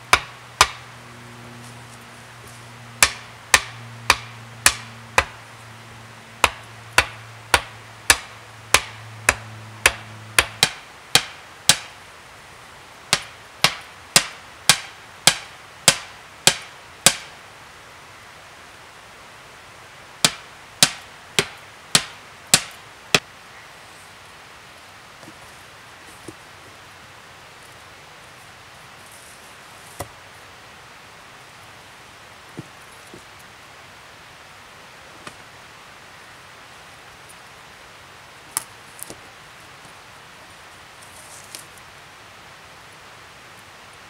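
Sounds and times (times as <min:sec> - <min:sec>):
hammer knocking wooden stakes: 0:00.1 - 0:00.9, 0:03.0 - 0:05.4, 0:06.4 - 0:12.0, 0:13.1 - 0:17.3, 0:20.2 - 0:23.2.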